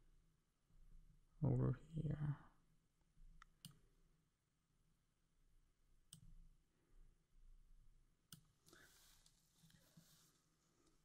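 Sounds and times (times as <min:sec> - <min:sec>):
computer mouse clicks: 0:03.4 - 0:03.8, 0:06.1 - 0:06.4, 0:08.3 - 0:08.6.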